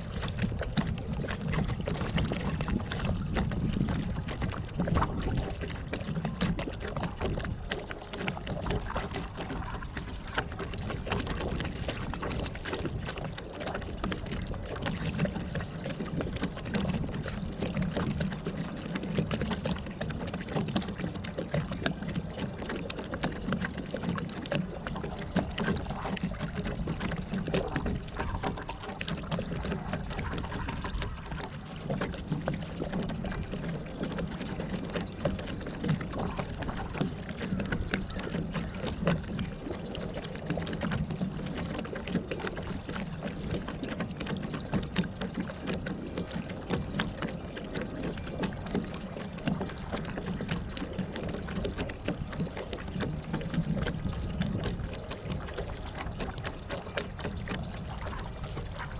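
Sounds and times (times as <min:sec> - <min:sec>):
water splashing and churning: 0:00.0 - 0:58.9.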